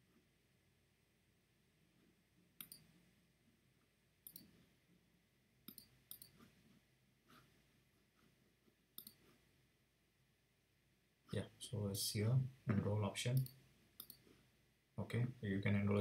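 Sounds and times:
computer mouse clicks: 0:02.6 - 0:02.9, 0:04.2 - 0:04.6, 0:05.6 - 0:06.5, 0:09.0 - 0:09.4, 0:13.4 - 0:14.3.

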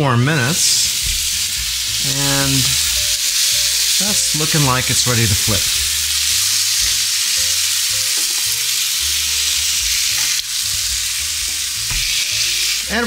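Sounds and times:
burger patties sizzling on grill: 0:00.2 - 0:13.0.

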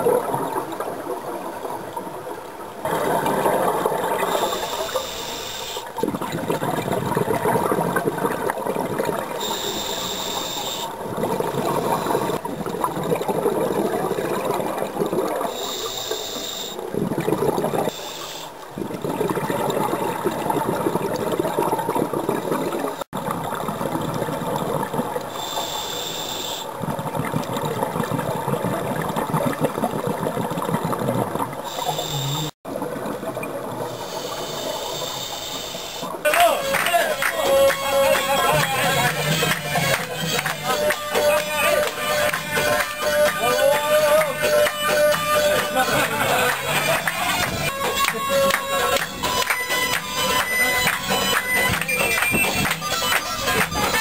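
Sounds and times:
exhaled bubbles rumbling: 0:00.0 - 0:04.6, 0:05.9 - 0:09.7, 0:10.9 - 0:15.7, 0:16.8 - 0:18.0, 0:18.6 - 0:25.4, 0:26.7 - 0:34.0, 0:38.1 - 0:43.4, 0:44.0 - 0:54.0
hissing regulator inhales: 0:04.2 - 0:05.9, 0:09.4 - 0:10.9, 0:15.5 - 0:16.8, 0:17.9 - 0:18.6, 0:25.3 - 0:26.7, 0:33.9 - 0:36.2.

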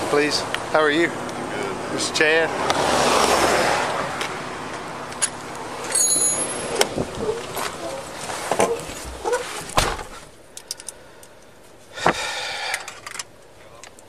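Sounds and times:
footsteps: 0:06.2 - 0:10.3
car door shutting with thump: 0:08.5 - 0:10.2.

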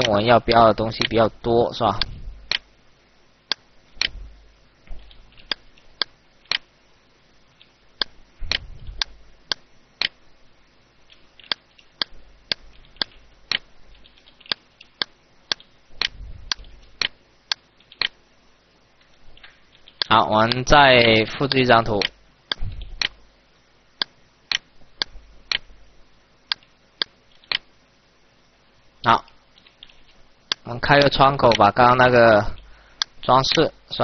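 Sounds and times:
soft low thuds: 0:02.0 - 0:02.5, 0:04.0 - 0:05.4, 0:08.2 - 0:09.4, 0:15.9 - 0:17.1, 0:22.6 - 0:23.3
mouse buttons clicking: 0:11.1 - 0:18.2.

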